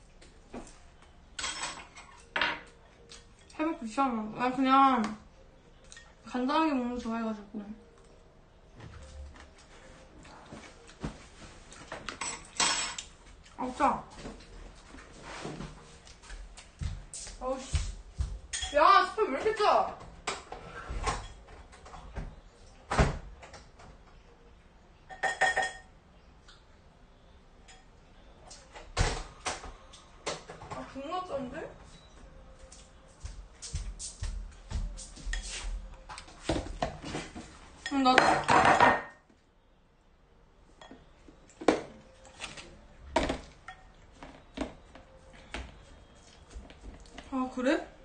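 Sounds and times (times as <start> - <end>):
tableware knocks and clinks: 1.4 - 2.7, 12.2 - 13.1, 25.1 - 25.9, 37.9 - 39.2.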